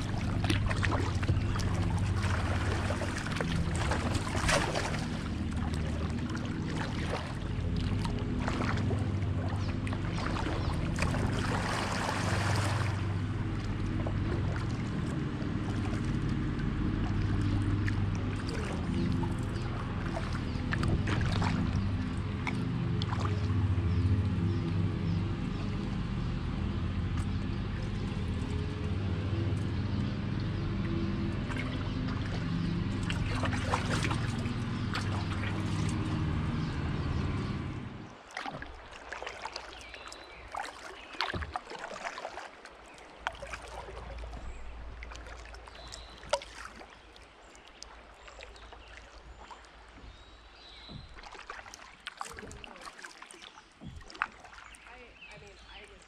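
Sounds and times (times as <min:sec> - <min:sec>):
low steady drone: 0:00.0 - 0:40.6
kayak paddle splashing: 0:00.0 - 0:56.0
trickle of moving water: 0:00.0 - 0:56.0.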